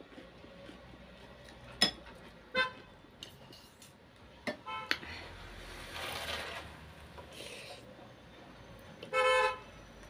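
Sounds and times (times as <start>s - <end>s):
cutlery clinking on ceramic bowl: 1.8s - 2.2s.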